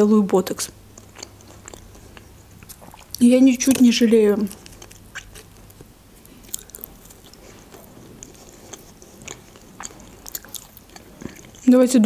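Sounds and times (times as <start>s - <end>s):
chewing and biting food: 0.4s - 11.7s
mouth clicks: 1.0s - 7.4s.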